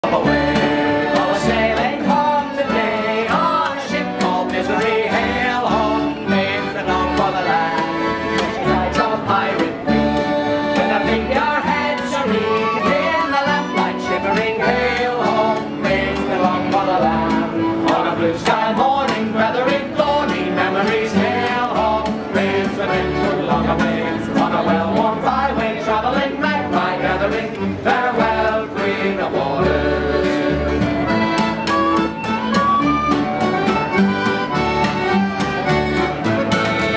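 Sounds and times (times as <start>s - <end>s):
accordion: 0.0s - 36.9s
acoustic guitar: 0.0s - 36.9s
plucked upright bass: 0.0s - 36.9s
flute: 9.9s - 17.2s, 29.7s - 36.9s.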